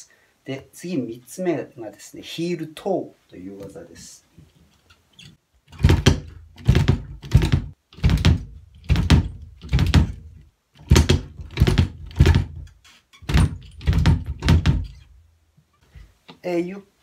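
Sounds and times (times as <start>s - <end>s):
kick drum strokes: 5.8s - 12.6s, 13.3s - 15.0s.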